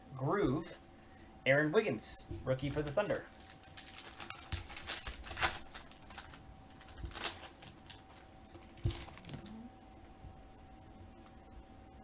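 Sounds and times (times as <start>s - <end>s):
foil cards rustling: 2.6s - 9.6s.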